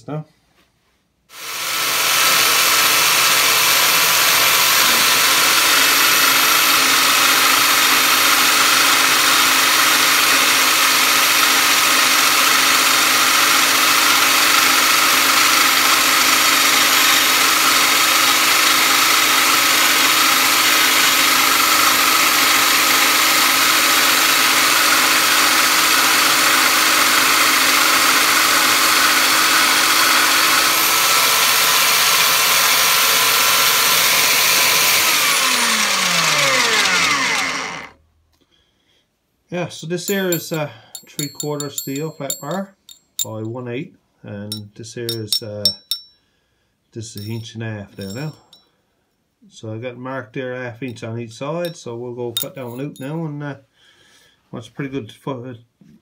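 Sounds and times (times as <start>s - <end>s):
band saw cutting steel: 1.3s - 38.0s, 40.1s - 43.5s, 44.5s - 46.1s, 47.2s - 47.4s, 48.0s - 48.6s
band saw winding down: 1.3s - 38.0s, 40.1s - 43.5s.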